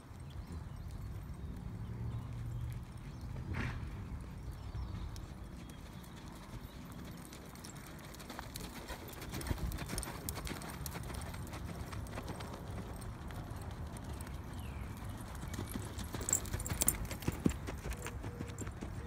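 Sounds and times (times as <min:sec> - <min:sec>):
horse hoofbeats on sand: 0:00.2 - 0:19.0.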